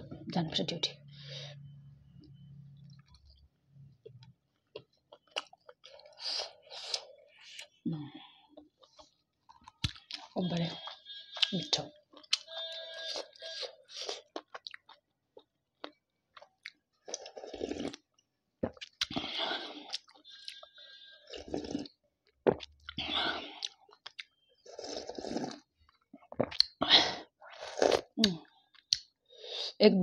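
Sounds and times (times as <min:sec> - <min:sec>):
slurping and swallowing soup: 0:17.0 - 0:18.0, 0:18.6 - 0:28.2.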